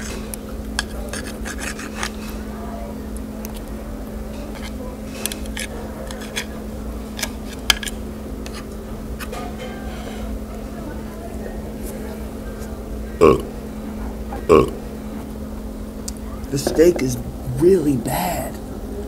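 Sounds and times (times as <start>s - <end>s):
steady low hum: 0.0s - 19.0s
cutlery scraping ceramic plate: 0.8s - 2.3s, 4.5s - 6.6s.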